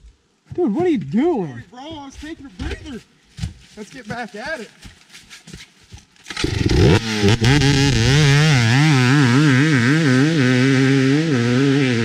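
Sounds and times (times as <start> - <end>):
dirt bike engine revving: 6.3 - 12.0.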